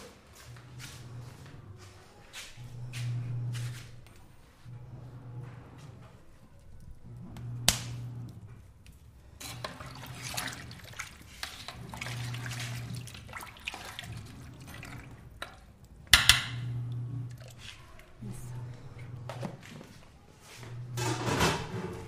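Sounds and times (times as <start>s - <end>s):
sink water running and dripping: 9.4s - 18.2s.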